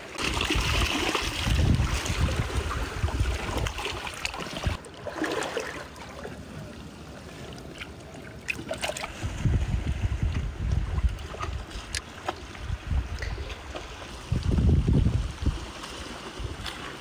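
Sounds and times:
shallow water splashing and trickling: 0.0 - 17.0
wind rumbling on microphone: 0.2 - 4.8, 9.0 - 17.0.

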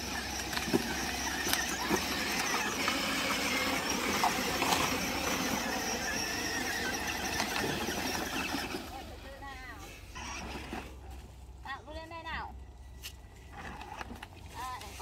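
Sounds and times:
toy car electric motor whining: 0.0 - 10.9.

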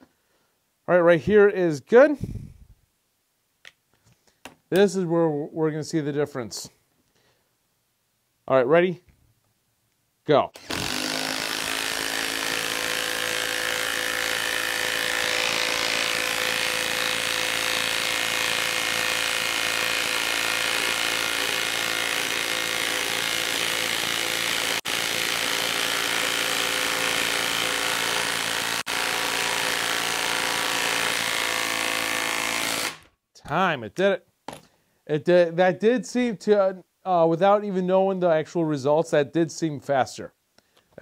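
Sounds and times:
impact wrench hammering: 10.6 - 33.1.

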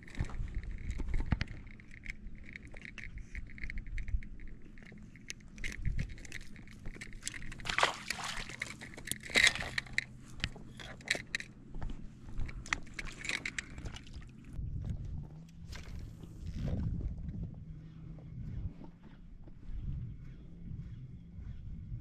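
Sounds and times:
handling clicks and rustling: 0.0 - 14.6.

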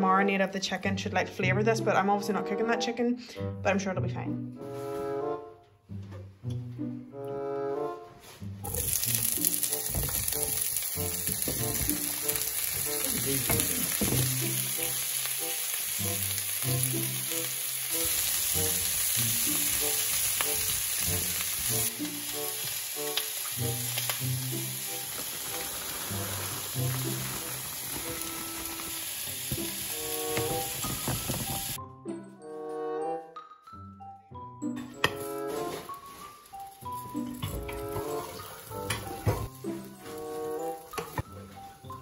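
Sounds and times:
quiet background music: 0.0 - 42.0
vegetables sizzling in a frying pan: 8.6 - 31.8, 35.1 - 41.8.

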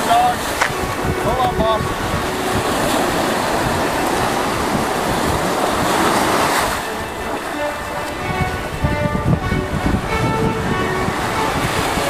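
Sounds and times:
shallow surf splashing: 0.0 - 12.0.

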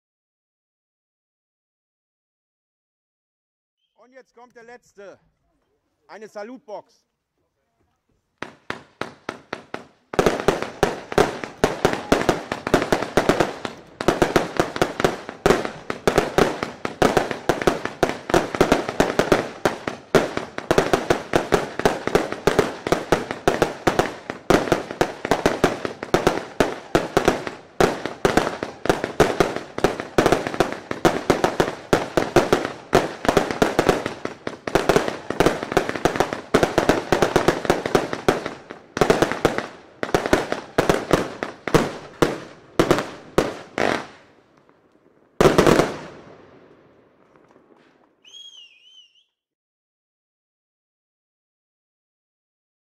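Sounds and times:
rapid fireworks bangs: 8.4 - 44.3, 45.4 - 46.3.

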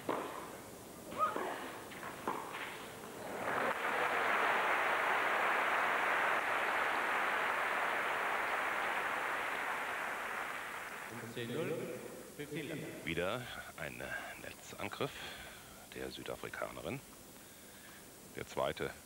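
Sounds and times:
tennis ball strikes: 0.0 - 0.6, 1.2 - 2.8
crowd applause: 3.3 - 11.1.

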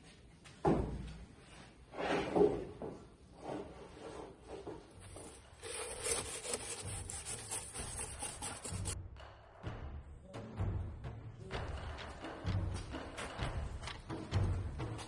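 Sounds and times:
canvas scraping on concrete: 3.4 - 9.0.

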